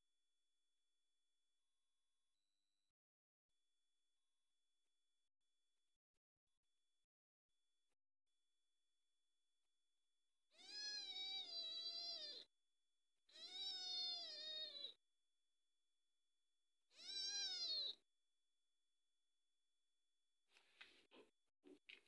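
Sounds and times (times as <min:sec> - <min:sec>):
kitten meowing: 0:10.6 - 0:12.5, 0:13.3 - 0:15.0, 0:16.9 - 0:18.0.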